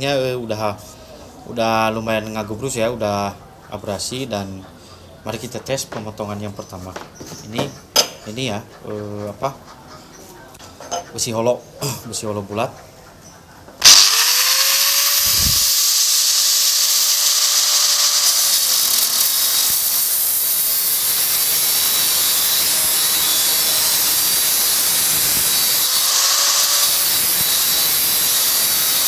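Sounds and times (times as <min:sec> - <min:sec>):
angle grinder whine: 0:13.8 - 0:29.0
disc grinding through steel tube: 0:13.8 - 0:29.0.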